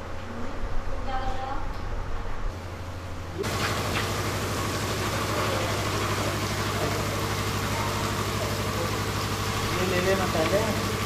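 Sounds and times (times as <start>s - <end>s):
motor humming: 3.4s - 11.0s.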